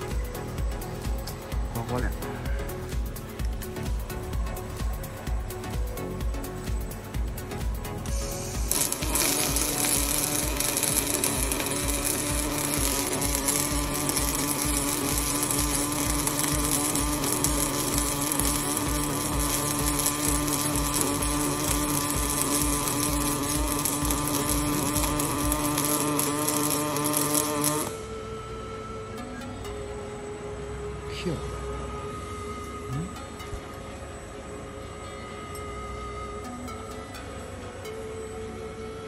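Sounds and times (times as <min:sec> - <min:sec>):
welding arc buzzing crackle: 0:02.8 - 0:28.1.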